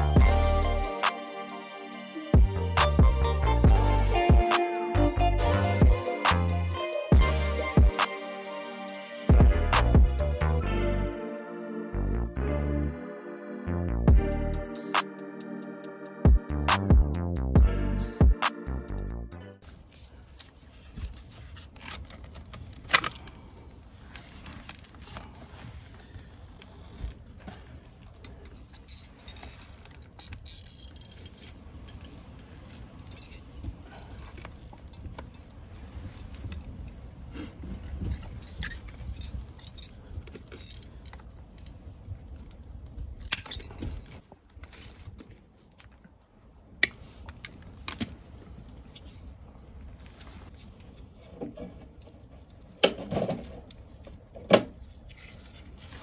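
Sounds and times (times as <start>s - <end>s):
low steady rumble: 0.0s - 0.9s, 2.4s - 4.4s.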